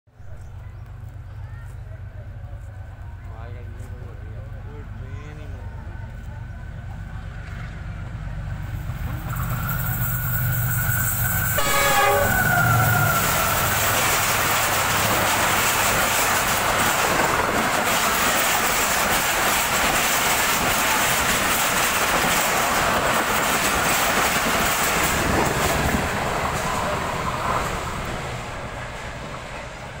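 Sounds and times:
train wheels rattling on rails: 0.4 - 30.0
locomotive horn: 11.5 - 13.7.

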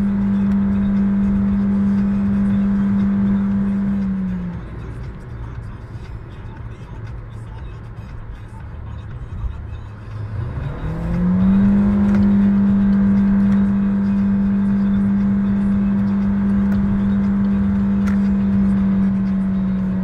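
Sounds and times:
car engine droning at high revs: 0.0 - 20.0.

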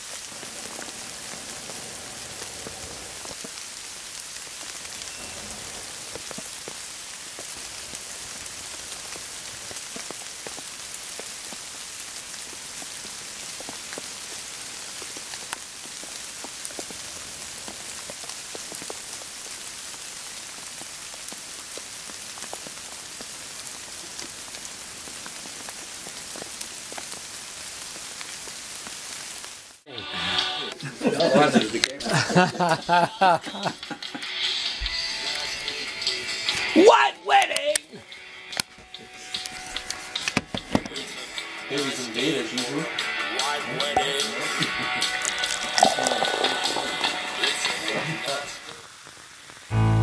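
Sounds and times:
rain on foliage: 0.0 - 50.0
water drips ticking: 44.0 - 47.8.

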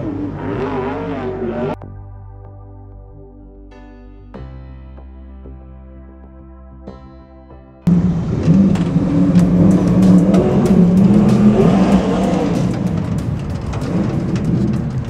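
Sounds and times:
race car engine at low revs: 0.0 - 1.8, 7.9 - 15.0
sharp clicks and rattles: 7.9 - 15.0.

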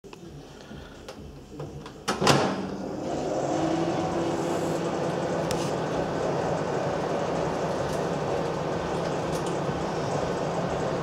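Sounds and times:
microwave door shutting: 2.1 - 2.8
microwave oven humming: 2.2 - 11.0.

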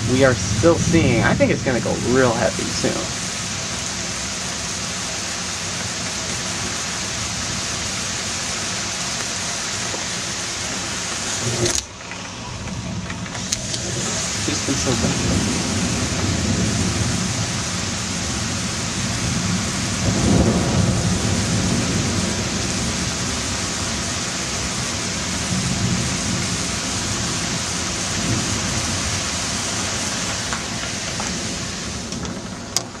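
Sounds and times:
low rumble of thunder: 0.0 - 5.0, 12.4 - 33.0
steady rain falling: 0.0 - 33.0.

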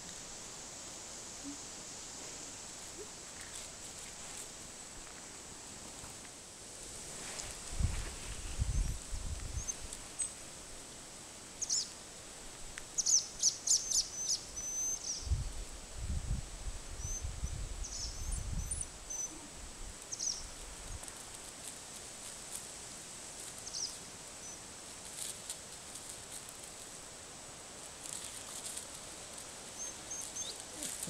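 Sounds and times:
outdoor background noise: 0.0 - 31.0
small birds chirping: 9.5 - 10.3, 11.6 - 11.9, 13.0 - 15.4, 17.0 - 19.5, 20.1 - 20.5, 23.6 - 24.6, 29.7 - 31.0.

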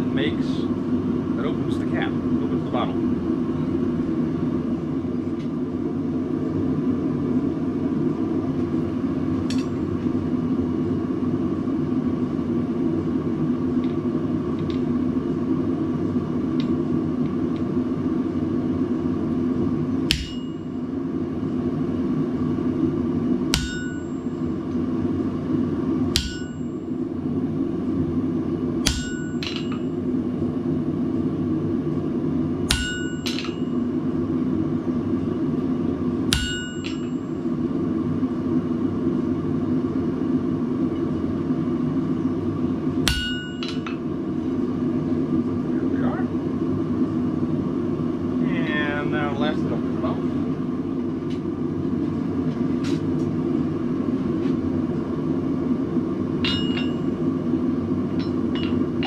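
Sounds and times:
hammer striking metal on anvil: 9.5 - 9.8, 20.1 - 20.7, 23.5 - 24.4, 26.1 - 26.8, 28.8 - 29.9, 32.7 - 33.8, 36.3 - 37.2, 43.0 - 44.0, 56.4 - 57.2, 58.2 - 59.0.

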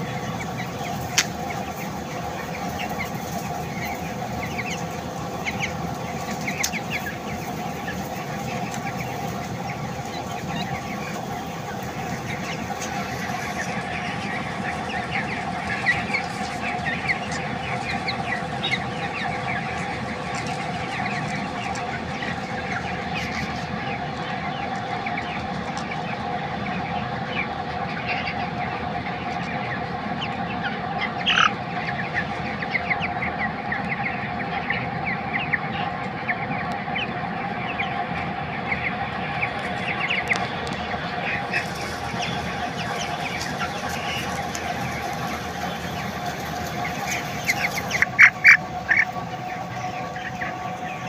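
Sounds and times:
chickens peeping and chirping: 0.0 - 51.0
steady hum: 0.0 - 51.0.

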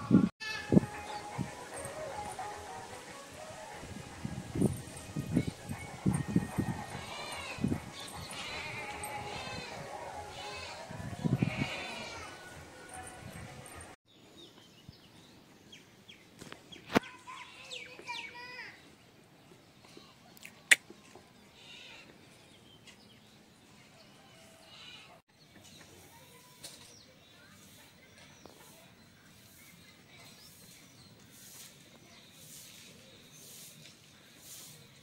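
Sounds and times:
farm animal bleating: 6.4 - 12.6
small birds chirping: 24.7 - 35.0.

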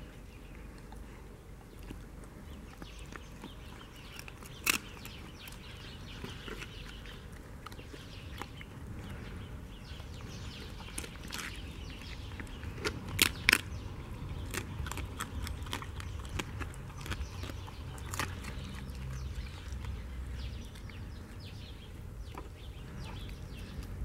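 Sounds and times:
dog chewing bones: 1.6 - 8.7, 10.2 - 21.1.

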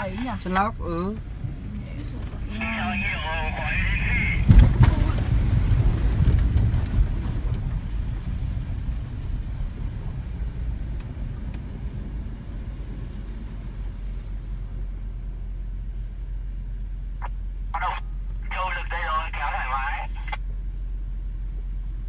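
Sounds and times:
pickup truck rumble on rough track: 0.0 - 19.2
knocks and thumps: 4.4 - 7.8.

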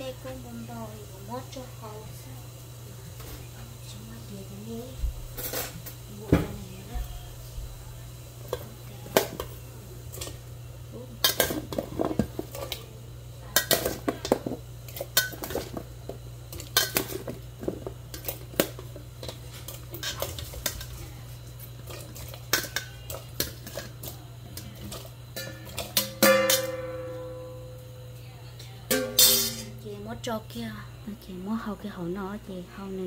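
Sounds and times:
metal spoon clanking on bowl: 24.9 - 27.5, 28.9 - 29.8.

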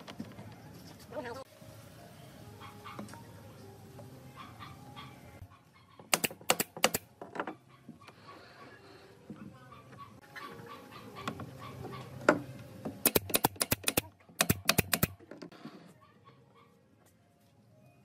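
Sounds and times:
nail gun firing: 6.1 - 7.1, 13.0 - 15.2.

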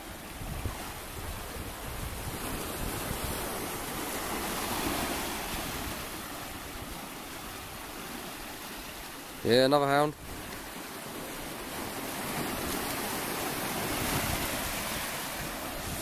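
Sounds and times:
sea surf breaking: 0.0 - 16.0.

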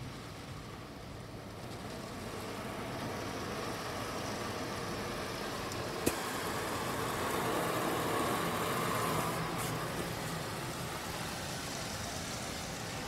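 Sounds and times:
car wash spray and machinery: 0.0 - 13.0.

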